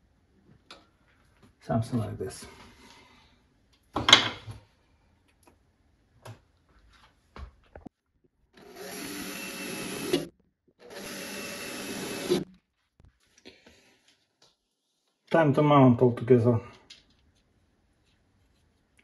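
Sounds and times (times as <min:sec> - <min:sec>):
power drill drilling: 0:08.6 - 0:12.4.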